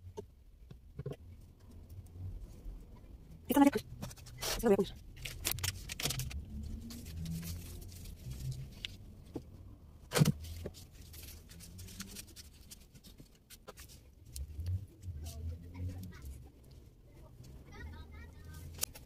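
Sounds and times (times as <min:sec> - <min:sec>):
items clicking and rustling: 0:03.8 - 0:15.4.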